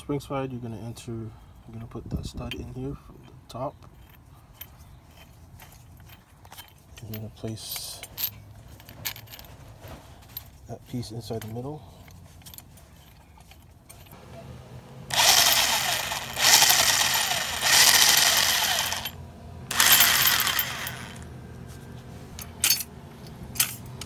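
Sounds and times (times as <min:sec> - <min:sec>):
power drill spinning: 0:14.2 - 0:21.3.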